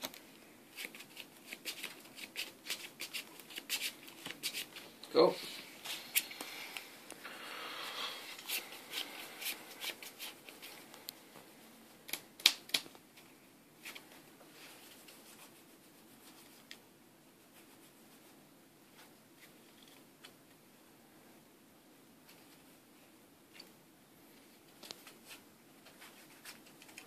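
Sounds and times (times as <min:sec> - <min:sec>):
cards rustling: 0:08.3 - 0:11.0.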